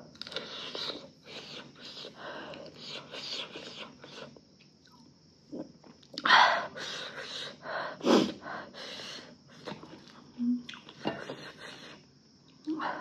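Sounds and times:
sharp breaths and sniffs: 11.2 - 12.0.

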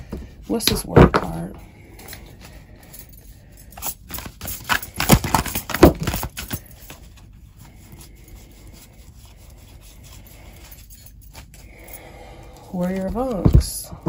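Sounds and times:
cards clicking and knocking: 4.1 - 6.9.

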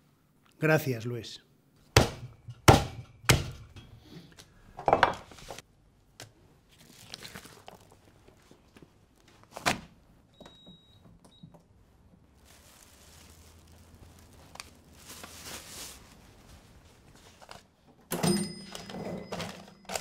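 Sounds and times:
cleaver chopping meat and bone: 1.9 - 3.6.

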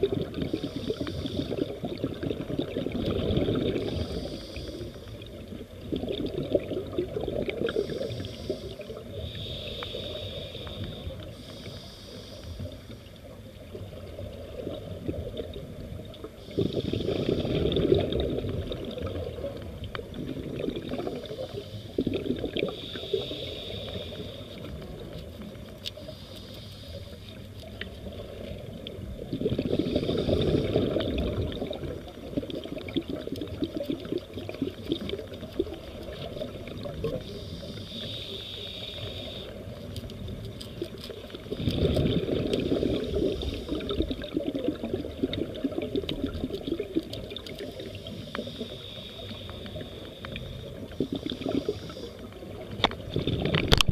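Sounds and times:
rush of bubbles: 0.0 - 9.4, 13.7 - 23.3, 28.0 - 37.7, 39.6 - 48.2, 50.6 - 53.9
regulator breathing hiss: 0.4 - 1.8, 3.8 - 5.5, 7.6 - 13.2, 16.3 - 17.5, 21.2 - 25.2, 25.9 - 27.5, 29.7 - 31.0, 35.9 - 40.0, 42.7 - 44.2, 47.5 - 52.6.

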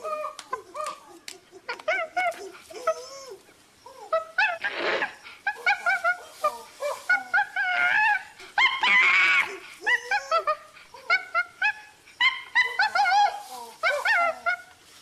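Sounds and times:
bonobos yelping and squeaking: 0.0 - 14.9
bonobo screech: 4.6 - 5.2.

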